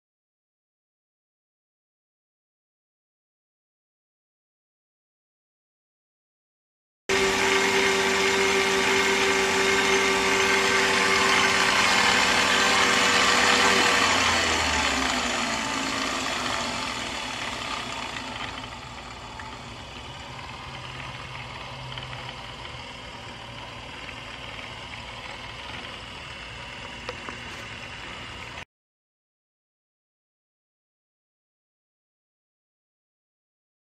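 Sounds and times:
electric stirrer motor whining: 7.1 - 28.6.

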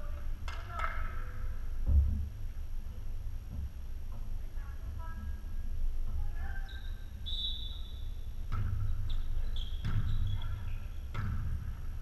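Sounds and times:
shoes squeaking on gym floor: 6.4 - 11.5
volleyball smacks: 9.8 - 11.9.

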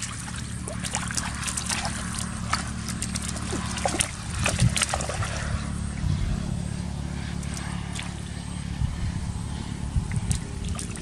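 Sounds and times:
boots squelching through mud: 0.0 - 5.7
low hum: 0.0 - 11.0.

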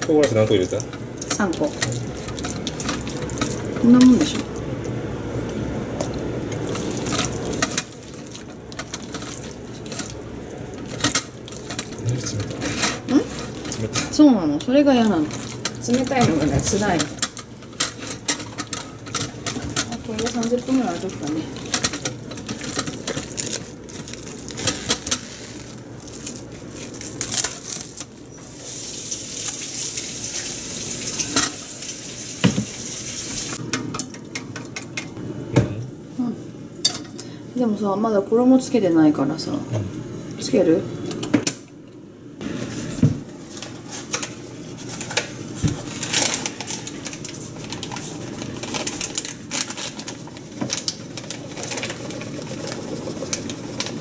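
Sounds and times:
kitchen tap running: 0.0 - 26.0, 28.4 - 34.9
cling film crinkling: 14.9 - 30.1, 43.5 - 54.0.

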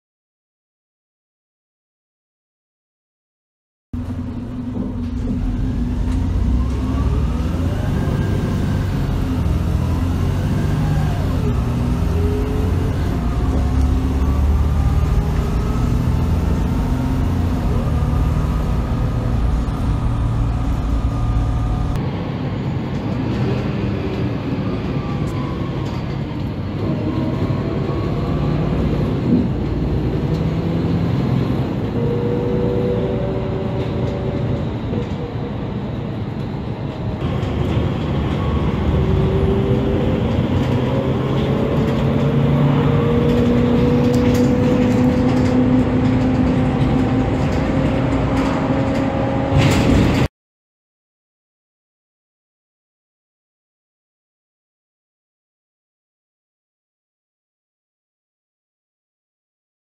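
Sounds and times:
gearbox whine: 4.0 - 22.0, 37.2 - 50.3
bus engine drone: 4.0 - 50.3.

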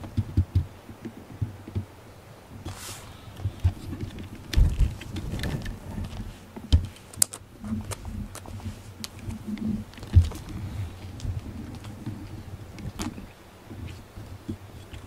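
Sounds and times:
handling noise clicks: 2.6 - 15.0.

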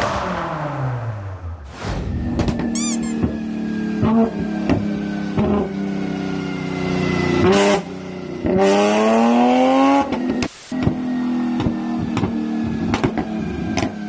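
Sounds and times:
car engine revving: 0.0 - 14.0
exhaust pops and bangs: 10.8 - 14.0.

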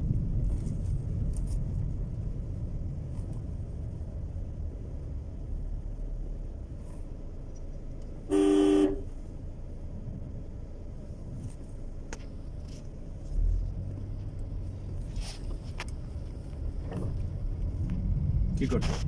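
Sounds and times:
low background rumble: 0.0 - 19.0
vehicle horn two-note blast: 8.3 - 9.1.

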